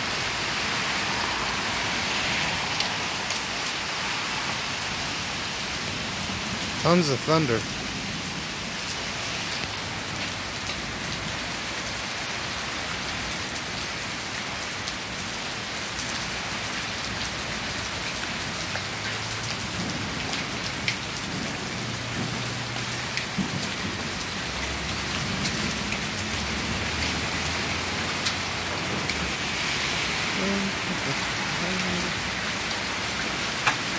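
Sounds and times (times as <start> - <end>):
heavy rain hissing: 0.0 - 10.6, 19.2 - 33.9
raindrops ticking close by: 12.8 - 33.9.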